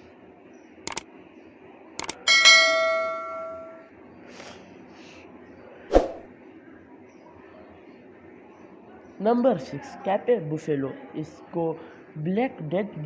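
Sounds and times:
mouse double clicks: 2.0 - 2.2
bright bell ding: 2.2 - 3.8.

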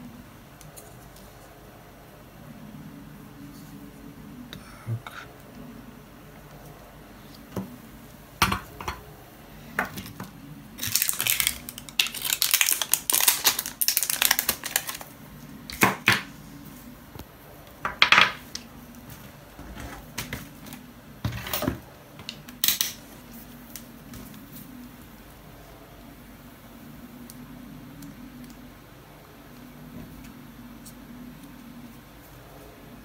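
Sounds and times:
small hard objects clattering: 9.8 - 15.0.

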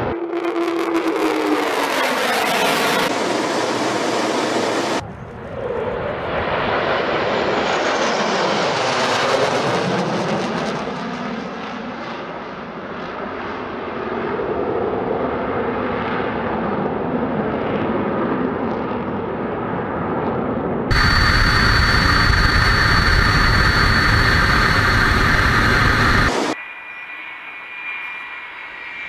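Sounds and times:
jets roaring past: 20.9 - 26.6.

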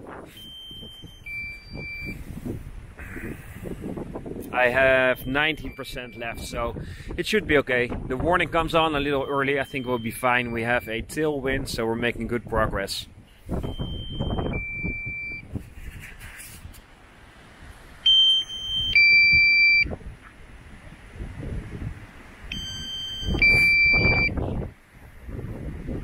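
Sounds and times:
wind rumble on microphone: 0.0 - 17.9, 18.5 - 26.0
two-tone warning beeps: 0.3 - 2.2, 4.8 - 6.6, 8.9 - 11.3, 13.6 - 15.5, 18.0 - 19.9, 22.5 - 24.5.

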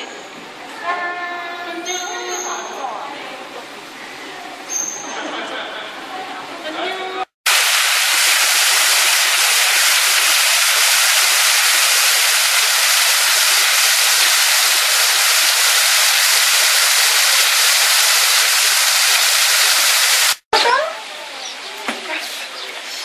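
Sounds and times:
waterfall rushing: 7.5 - 20.4.

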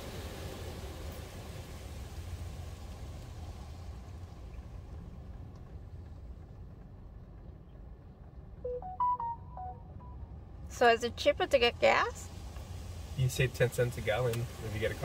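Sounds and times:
car wash low rumble: 0.0 - 15.0
electronic beeps rising in pitch: 8.7 - 10.3
water spray hiss: 12.3 - 15.0.

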